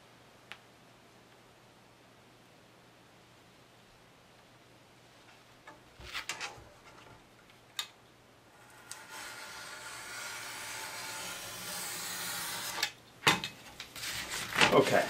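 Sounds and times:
blade scraping through board: 8.6s - 12.9s, 14.0s - 15.0s.

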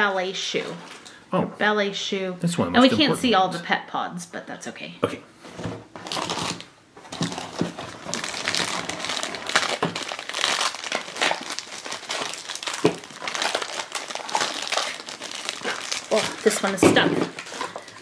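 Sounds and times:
plastic bag crinkling: 6.0s - 18.0s.

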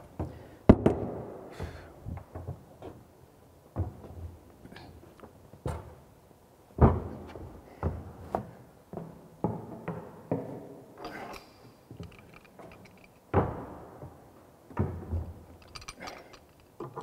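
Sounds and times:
plumbing tools knocking and clunking: 14.7s - 17.0s.

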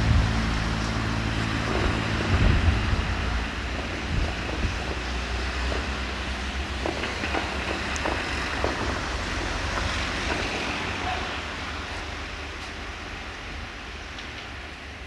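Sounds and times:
train rumbling along track: 0.0s - 15.0s
wheels clicking over rails: 0.0s - 15.0s.

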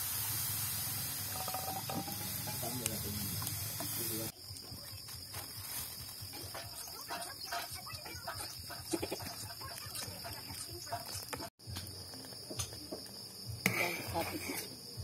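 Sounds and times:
puree hissing in a pan: 0.0s - 4.4s
fire clicks and crackles: 0.0s - 13.3s.

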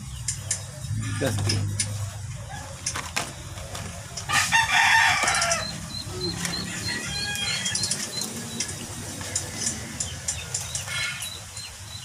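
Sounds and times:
rooster crowing: 4.3s - 7.9s.

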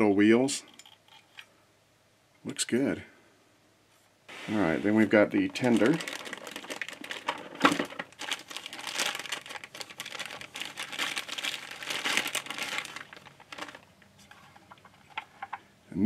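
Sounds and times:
plastic packaging crinkling: 4.3s - 15.3s.

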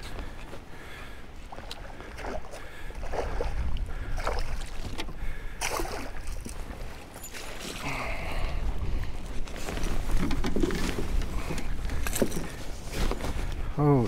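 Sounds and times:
small waves slapping a hull: 0.0s - 7.8s
wind buffeting microphone: 1.9s - 7.2s, 8.0s - 13.8s.

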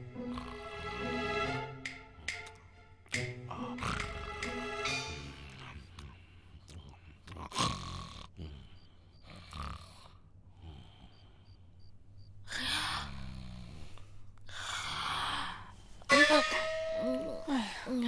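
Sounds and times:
person snoring: 0.2s - 0.8s, 3.5s - 4.3s, 12.5s - 15.5s.

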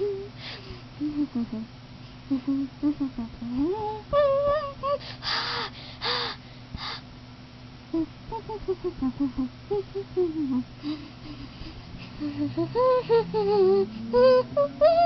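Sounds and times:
child humming a tune: 0.0s - 1.7s, 2.3s - 6.4s, 7.9s - 15.0s
child's breathy hisses: 5.0s - 7.0s.

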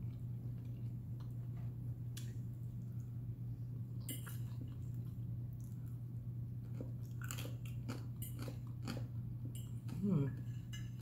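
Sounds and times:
steady low hum: 0.0s - 11.0s
person chewing crunchy food: 4.1s - 11.0s.

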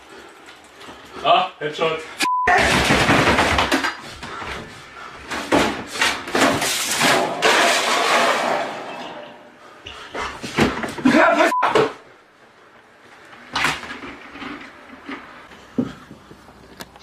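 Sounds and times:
short beep: 2.2s - 2.6s, 11.5s - 11.9s
window flung open with bangs: 2.5s - 4.0s, 5.4s - 9.4s.

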